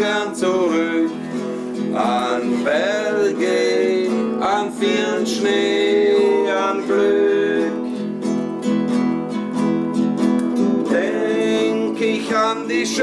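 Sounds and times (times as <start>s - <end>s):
men singing: 0.0s - 8.1s, 10.8s - 13.0s
acoustic guitar strumming: 0.0s - 13.0s.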